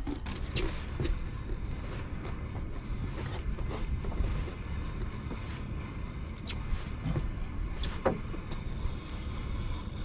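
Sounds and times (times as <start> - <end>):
boat engine rumble: 0.0 - 10.0.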